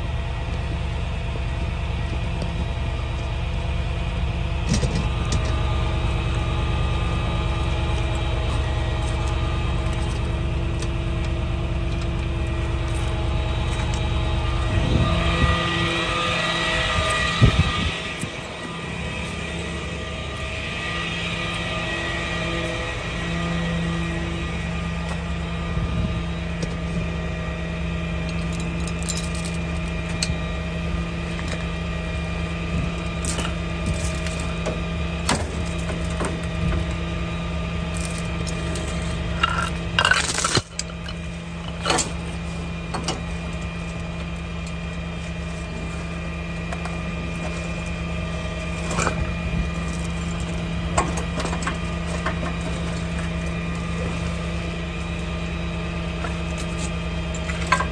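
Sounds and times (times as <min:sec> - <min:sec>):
truck engine idling: 0:00.0 - 0:57.9
metal chains clinking: 0:28.3 - 0:30.0, 0:32.2 - 0:34.6, 0:37.9 - 0:42.3, 0:48.8 - 0:50.7
metallic clatter: 0:28.3 - 0:30.2, 0:32.2 - 0:37.0, 0:37.9 - 0:44.0.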